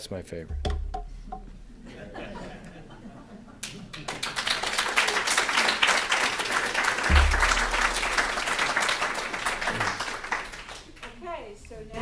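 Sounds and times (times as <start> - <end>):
low thump: 0.4 - 1.6, 7.1 - 8.0
audience applauding: 3.6 - 11.2.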